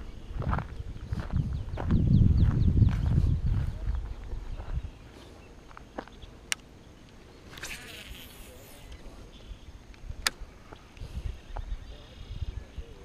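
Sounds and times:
low outdoor background: 0.0 - 13.0
flying insect buzzing: 7.4 - 9.3.

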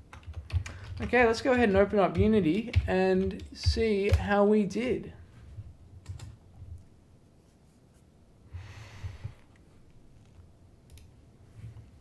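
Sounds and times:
low steady hum: 0.0 - 12.0
person breathing out: 8.5 - 9.5
faint clicks: 9.4 - 11.1.

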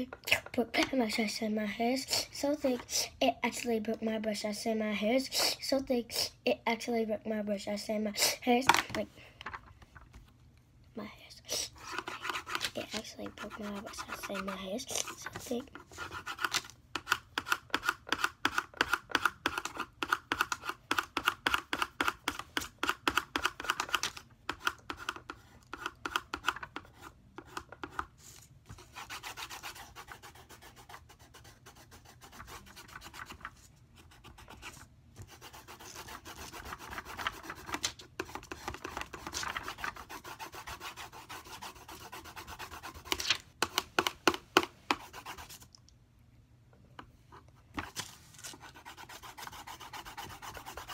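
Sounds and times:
colored pencil scratching on paper: 11.6 - 43.9, 44.6 - 45.7, 47.8 - 50.9.

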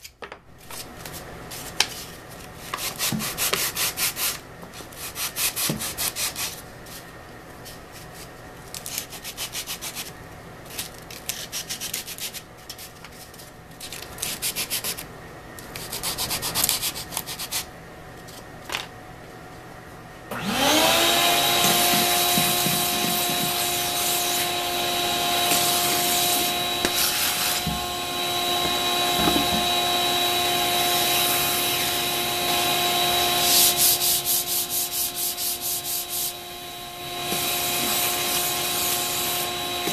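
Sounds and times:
sanding block strokes: 2.7 - 4.4, 5.0 - 7.0, 8.9 - 10.1, 11.3 - 13.0, 14.2 - 15.0, 15.8 - 17.7, 20.6 - 36.5, 37.1 - 39.9
vacuum motor whine: 20.3 - 39.9.

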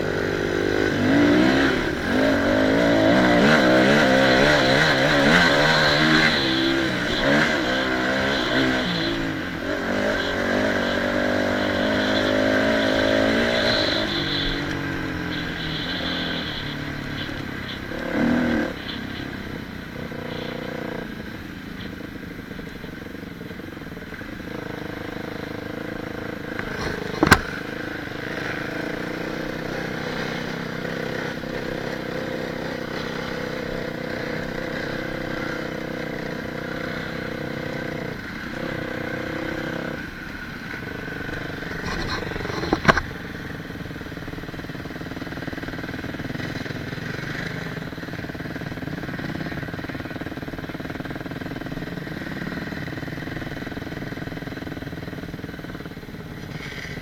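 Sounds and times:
dirt bike engine revving: 0.0 - 21.5, 24.5 - 55.4
sharp knock: 26.7 - 27.6.

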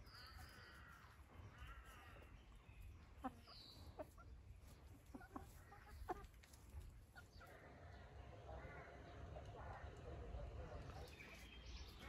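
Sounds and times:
chickens clucking: 0.3 - 7.5.

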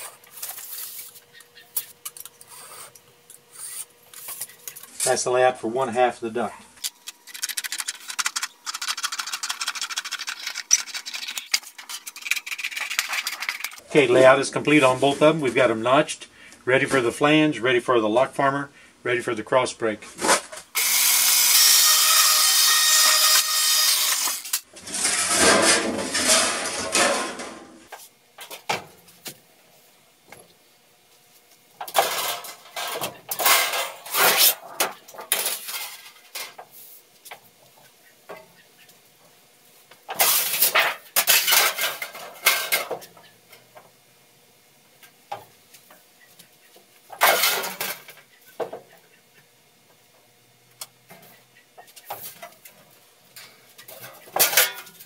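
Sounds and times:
sheet metal scraping: 24.8 - 27.7, 32.0 - 36.2
metallic clanks and rattles: 53.4 - 55.0.

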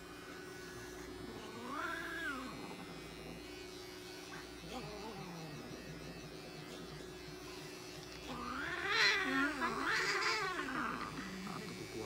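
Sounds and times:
electric clippers humming: 0.0 - 12.0
cat yowling: 8.3 - 11.4.

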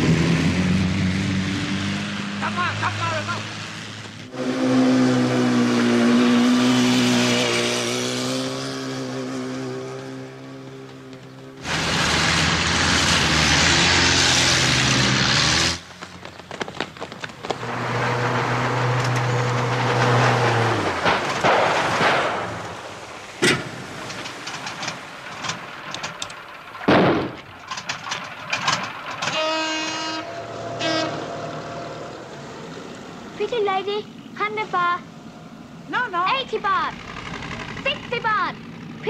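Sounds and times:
boat engines racing past: 0.0 - 26.9, 27.5 - 39.0
horn sounding: 4.3 - 6.6, 29.3 - 32.3
sharp bangs: 11.6 - 32.2.

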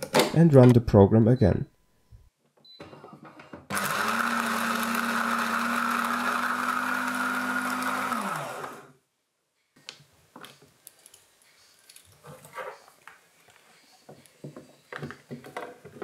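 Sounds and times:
coffee grinder motor running: 3.7 - 8.9.

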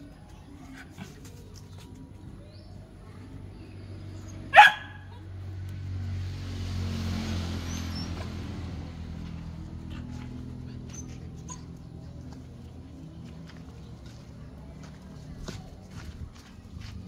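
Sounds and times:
dog barking: 4.5 - 5.2.

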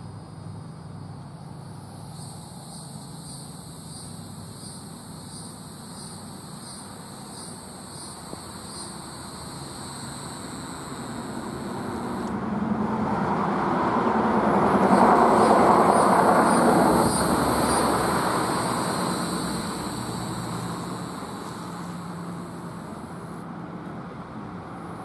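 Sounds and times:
road vehicle passing by: 7.3 - 25.0.

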